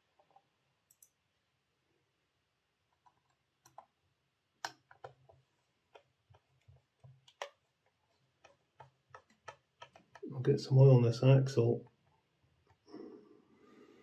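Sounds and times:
plastic parts clicking and tapping: 4.6 - 10.3.

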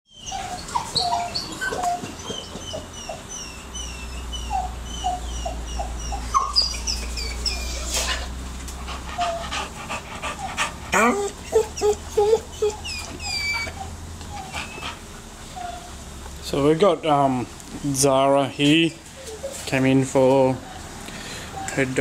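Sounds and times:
dog whining: 0.1 - 16.8, 19.0 - 19.8.

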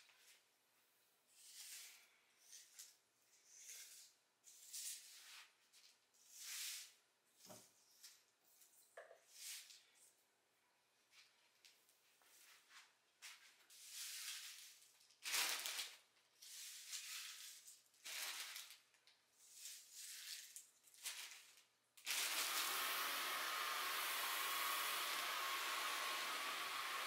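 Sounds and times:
appliance fan motor whirring: 22.1 - 27.0.

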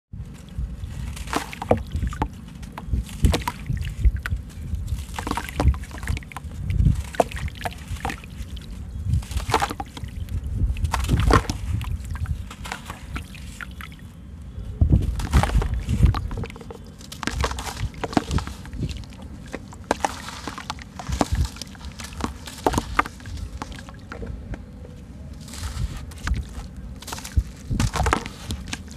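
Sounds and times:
chunks crumbling and crunching: 0.2 - 14.1, 14.9 - 28.9
water sloshing: 0.2 - 14.2, 15.0 - 28.9
sand splashing into water: 0.6 - 14.0, 15.0 - 24.1.

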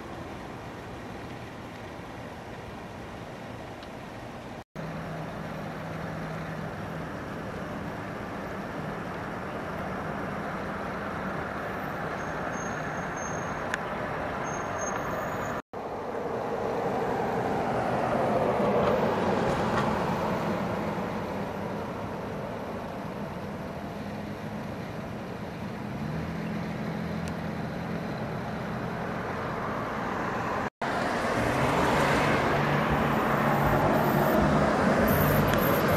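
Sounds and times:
road traffic noise: 0.0 - 35.9
vehicle passing close by: 15.8 - 22.7, 25.8 - 35.9.

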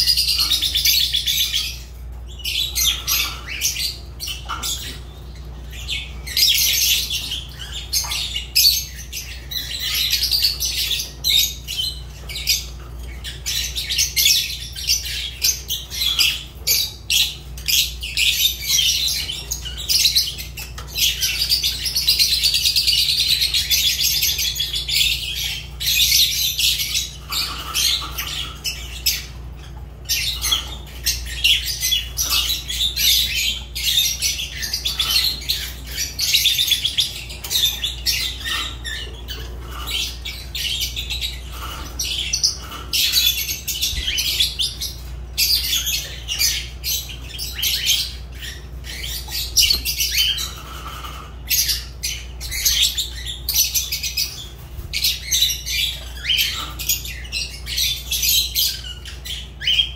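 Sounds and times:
lovebirds chirping and squawking: 0.0 - 59.9.

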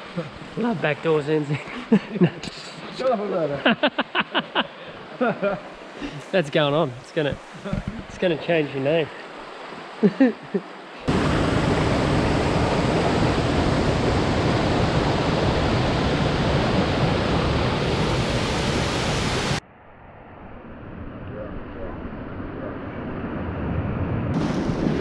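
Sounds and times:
water rushing: 0.0 - 19.6.

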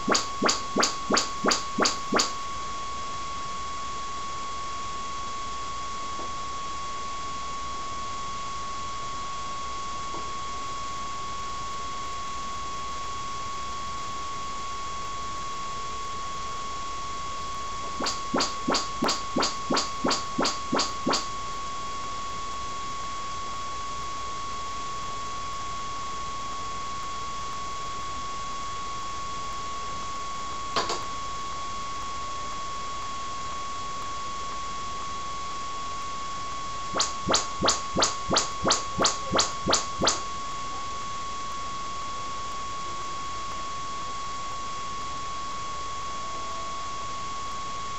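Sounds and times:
rising test chirps from speaker: 0.0 - 2.4, 18.0 - 21.3, 37.0 - 40.2
steady high whine: 0.0 - 2.5, 17.9 - 21.3, 37.0 - 40.3.

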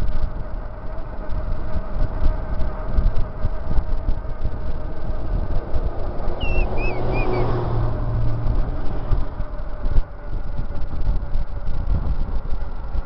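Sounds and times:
wind buffeting microphone: 0.0 - 13.0
motor vehicle passing: 0.3 - 11.7
high wavering chirps: 6.3 - 7.5.

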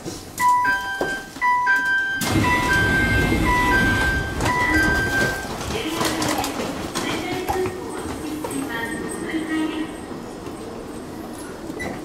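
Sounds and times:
electronic two-note door chime: 0.4 - 5.5.

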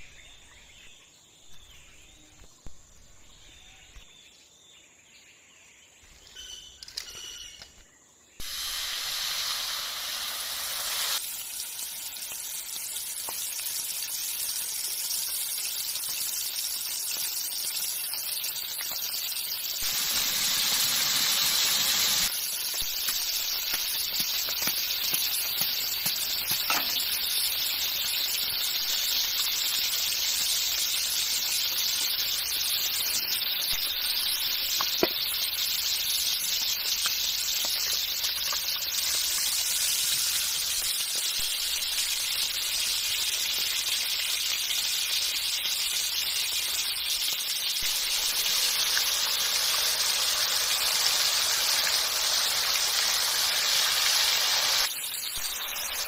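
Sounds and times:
fish deep-frying in oil: 8.4 - 56.0.

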